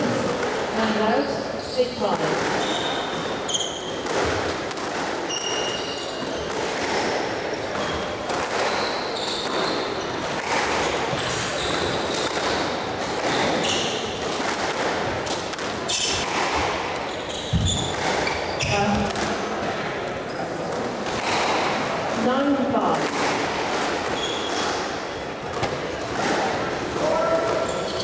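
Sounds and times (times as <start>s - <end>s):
murmur of spectators: 0.0s - 28.0s
shoes squeaking on wooden floor: 1.6s - 4.5s, 5.2s - 14.4s, 15.8s - 19.2s, 23.8s - 26.4s, 27.0s - 28.0s.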